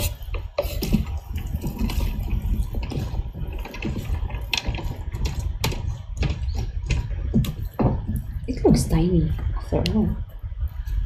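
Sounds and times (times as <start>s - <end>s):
hands squelching mixing meat: 0.0s - 8.3s.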